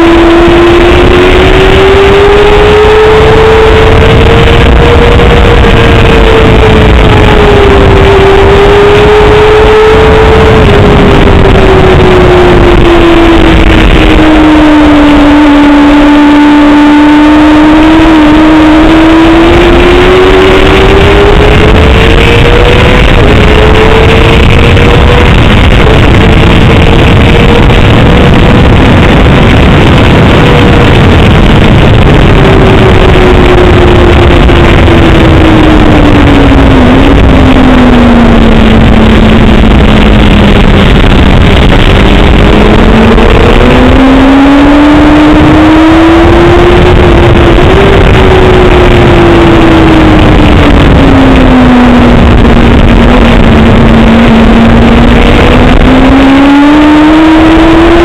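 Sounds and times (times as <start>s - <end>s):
motorcycle engine accelerating: 0.0s - 58.0s
wind and road noise: 0.0s - 58.0s.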